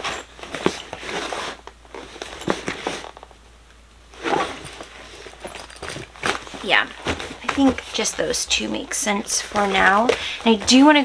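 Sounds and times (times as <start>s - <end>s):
fabric bags rustling: 0.0s - 3.3s, 4.1s - 11.0s
zipper rasping: 4.2s - 6.7s.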